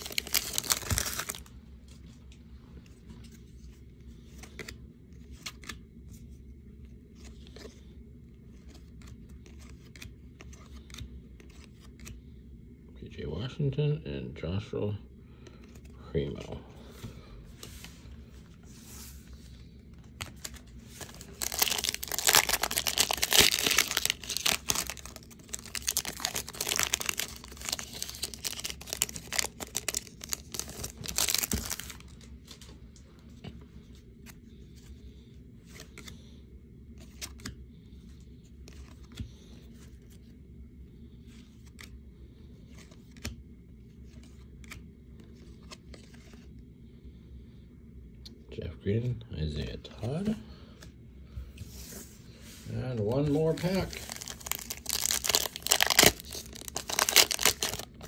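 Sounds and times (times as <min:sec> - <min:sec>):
wrapper tearing and crumpling: 0:00.0 - 0:01.5, 0:21.0 - 0:32.0, 0:53.4 - 0:58.0
cards being shuffled: 0:00.0 - 0:06.4, 0:08.5 - 0:12.3, 0:17.6 - 0:32.8, 0:37.0 - 0:37.6, 0:41.2 - 0:42.0, 0:42.6 - 0:46.5, 0:51.6 - 0:58.0.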